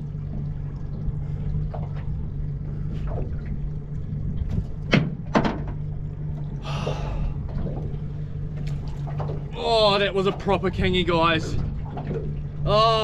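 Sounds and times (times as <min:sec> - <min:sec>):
outboard motor idling: 0:00.0 - 0:13.0
sharp knocks on boat side: 0:04.5 - 0:05.8.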